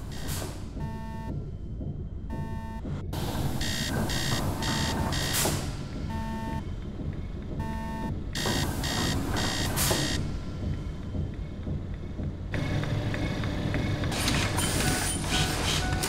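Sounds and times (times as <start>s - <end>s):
electronic beeps: 7.6s - 10.3s.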